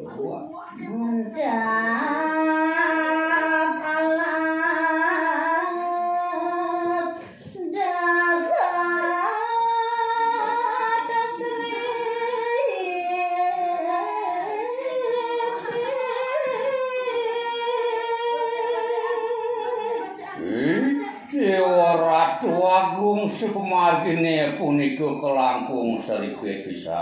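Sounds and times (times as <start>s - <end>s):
woman singing unaccompanied: 0.6s - 20.4s.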